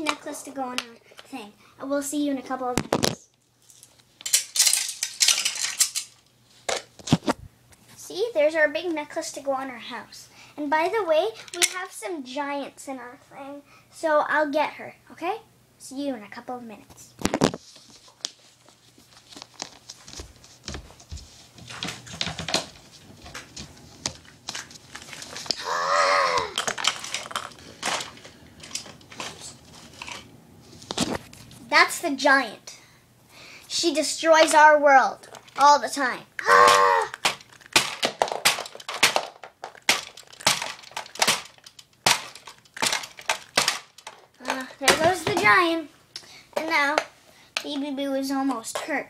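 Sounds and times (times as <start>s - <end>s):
plastic toys clattering: 2.8s - 7.3s, 11.4s - 11.9s, 21.6s - 23.5s, 26.5s - 30.3s, 37.0s - 45.7s.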